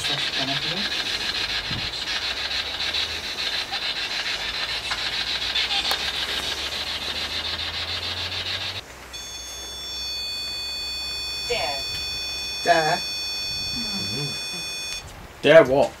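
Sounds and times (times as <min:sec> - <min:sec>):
rasping electronic static: 0:00.0 - 0:15.0
high electronic alarm beep: 0:06.6 - 0:15.0.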